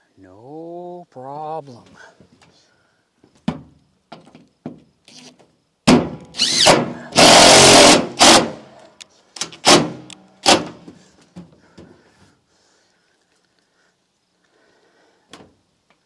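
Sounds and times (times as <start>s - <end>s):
power drill drilling metal: 6.4s - 8.7s.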